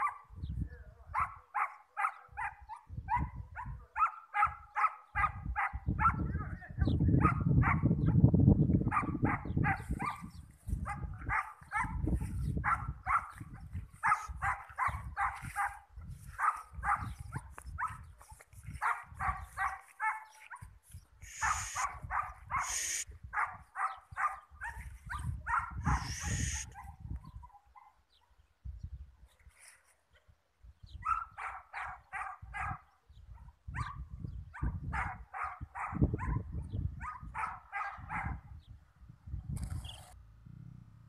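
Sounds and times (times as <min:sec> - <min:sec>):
dog barking: 0:00.0 - 0:00.3, 0:01.1 - 0:06.3, 0:07.2 - 0:08.1, 0:08.9 - 0:18.1, 0:18.8 - 0:20.7, 0:21.3 - 0:28.4, 0:31.0 - 0:38.5.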